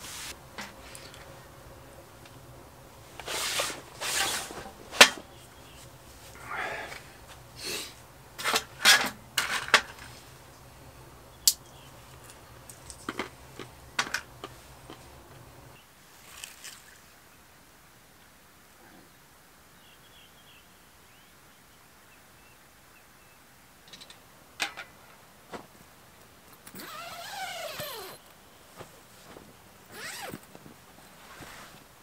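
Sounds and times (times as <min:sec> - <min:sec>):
soft rustles: 0:00.0 - 0:01.4, 0:26.6 - 0:32.0
steady low hum: 0:00.0 - 0:15.8
sharp clicks and cracks: 0:11.5 - 0:15.0.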